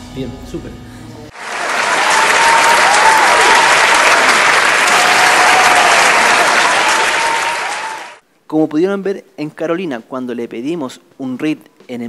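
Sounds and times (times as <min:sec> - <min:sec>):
crowd applauding: 0:01.3 - 0:08.2.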